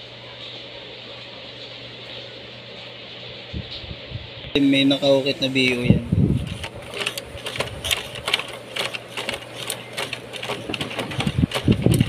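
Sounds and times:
sewing machine clacking: 0:06.5 - 0:12.0.

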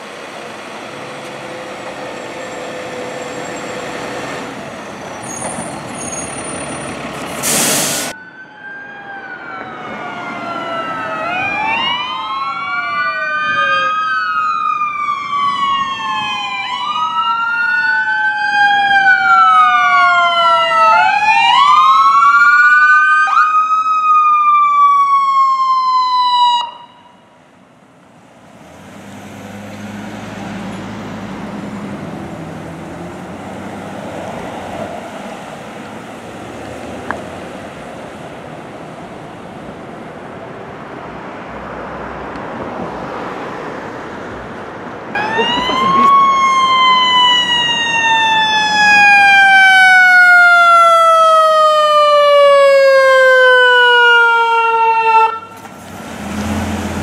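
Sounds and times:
fire sirens wailing: 0:00.0 - 0:27.5, 0:45.1 - 0:57.0
air hiss: 0:07.4 - 0:08.1.

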